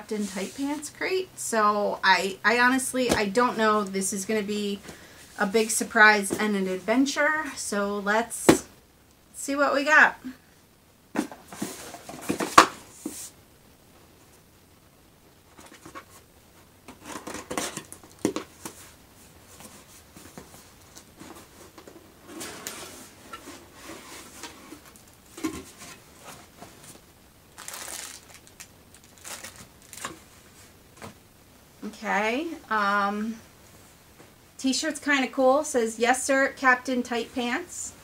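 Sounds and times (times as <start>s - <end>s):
packaging crinkling: 27.5s - 30.4s.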